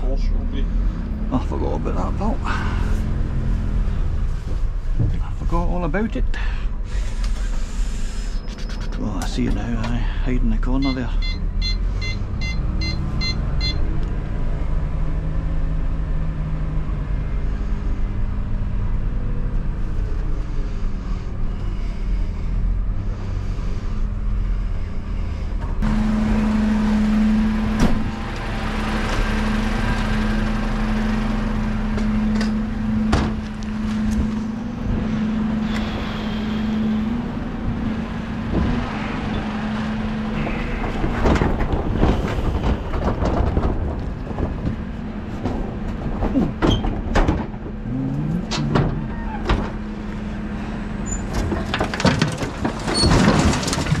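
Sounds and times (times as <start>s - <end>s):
truck diesel engine running: 0.0s - 54.0s
metallic clanks and rattles: 51.0s - 54.0s.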